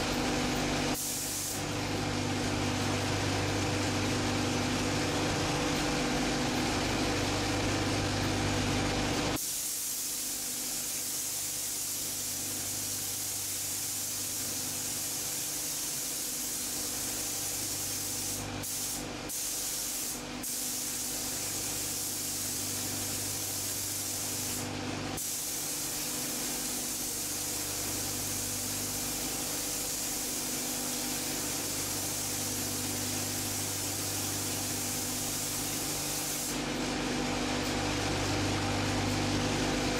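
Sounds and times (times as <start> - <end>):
low mechanical hum: 0.0 - 39.9
paint spray gun hissing: 0.9 - 1.7, 9.3 - 36.7.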